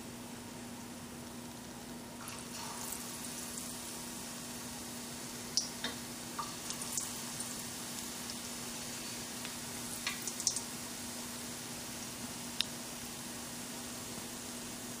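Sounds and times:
deep-frying sizzle with pops: 0:00.0 - 0:15.0.

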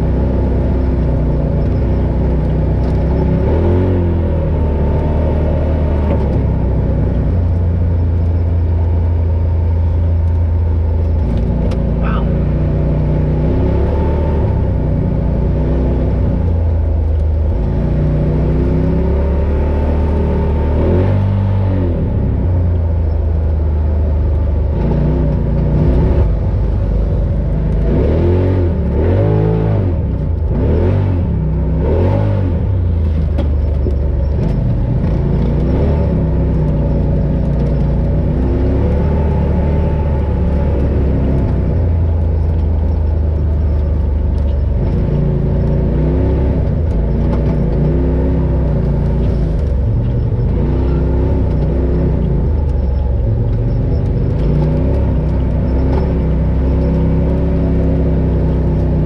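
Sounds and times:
off-road vehicle engine revving: 0:00.0 - 0:59.0.

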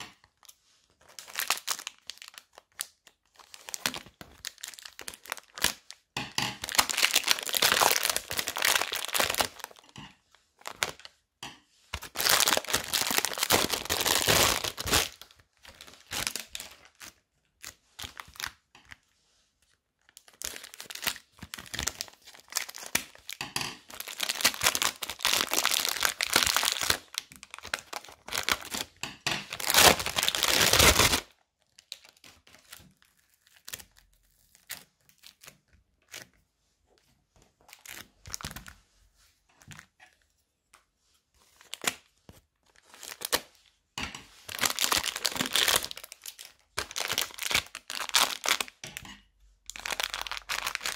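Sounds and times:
plastic bags crinkling: 0:00.0 - 0:11.1, 0:11.9 - 0:18.6, 0:20.1 - 0:35.4, 0:42.6 - 0:43.5, 0:44.2 - 0:50.9.

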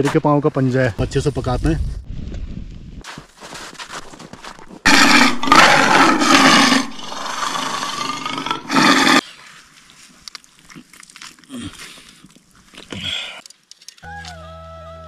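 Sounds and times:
big cat roaring: 0:04.9 - 0:09.2.

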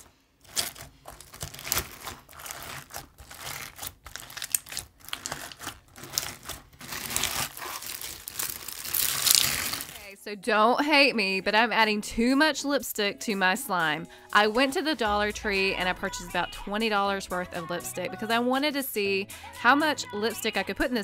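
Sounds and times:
slime crackling and crunching: 0:00.0 - 0:10.1.

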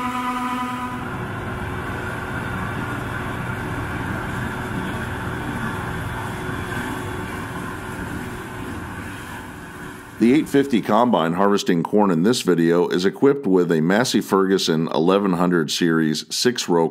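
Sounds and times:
combine harvester running: 0:00.0 - 0:11.1.

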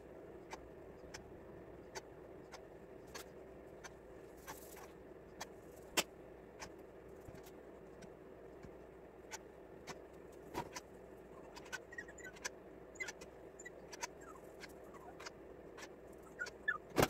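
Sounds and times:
low steady hum: 0:00.0 - 0:17.0
small squeaks: 0:01.8 - 0:05.9, 0:09.3 - 0:17.0.

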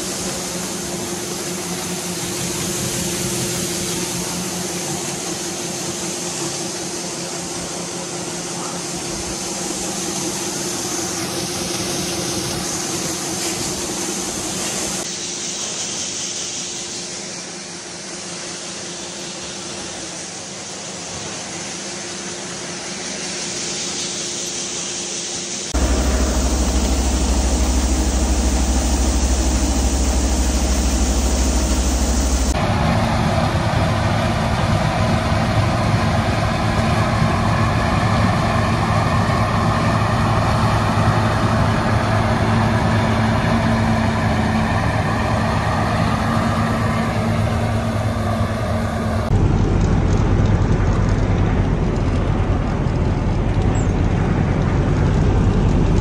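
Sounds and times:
combine harvester engine drone: 0:00.0 - 0:15.8, 0:25.6 - 0:56.0
grain auger humming: 0:25.8 - 0:49.4.

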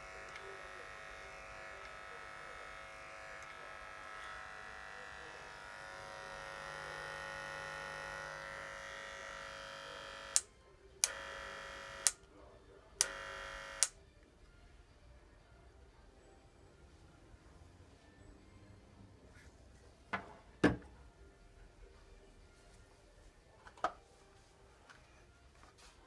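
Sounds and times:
hair clipper buzzing: 0:00.0 - 0:12.2, 0:13.0 - 0:14.0.

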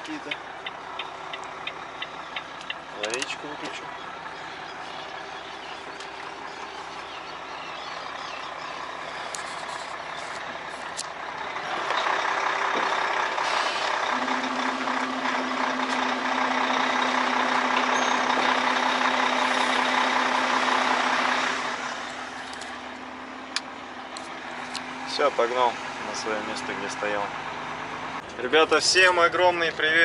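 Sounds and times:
truck engine running: 0:00.0 - 0:30.0.

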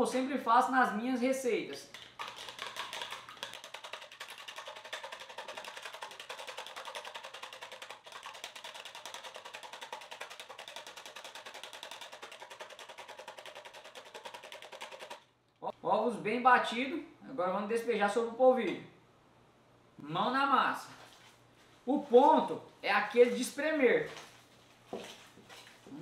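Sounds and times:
whisk clicking against plastic bowl: 0:01.9 - 0:15.2.

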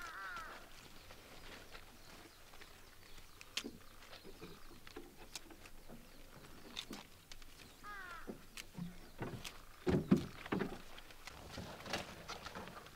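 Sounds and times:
seaweed rustling and snapping: 0:06.6 - 0:09.6, 0:10.2 - 0:12.9.

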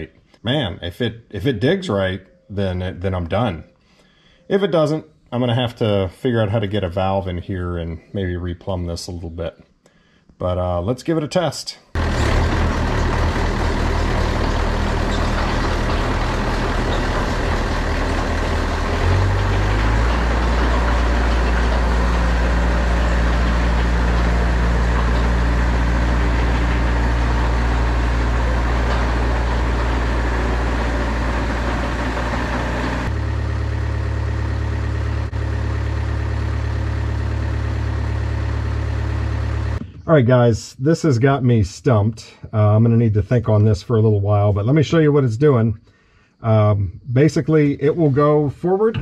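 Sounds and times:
excavator diesel engine running: 0:12.0 - 0:39.8.

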